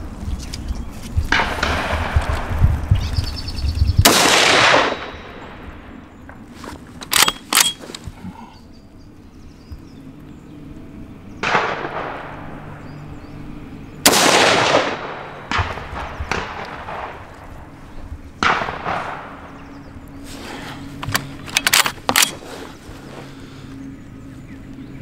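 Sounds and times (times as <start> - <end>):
rifle shots ringing: 4.0 - 5.7, 7.1 - 7.8, 11.4 - 12.6, 14.0 - 17.4, 18.4 - 19.5
sharp metallic clicks: 7.0 - 8.1, 21.0 - 22.4.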